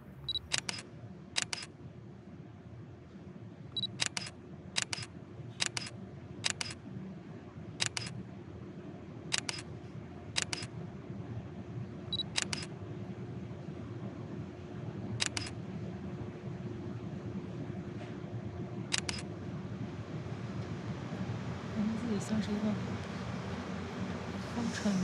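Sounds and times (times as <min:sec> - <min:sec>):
low steady background hum: 0:00.0 - 0:25.0
autofocus beep: 0:00.2 - 0:00.8, 0:03.8 - 0:05.9, 0:12.1 - 0:12.7
camera shutter double click: 0:03.8 - 0:06.8, 0:07.8 - 0:08.1, 0:09.3 - 0:09.6, 0:10.4 - 0:10.7, 0:12.3 - 0:12.7, 0:15.2 - 0:15.5, 0:18.9 - 0:19.2.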